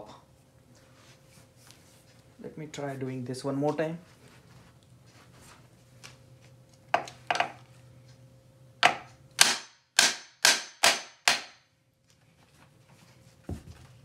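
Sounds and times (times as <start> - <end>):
hammer striking metal: 8.8 - 11.6.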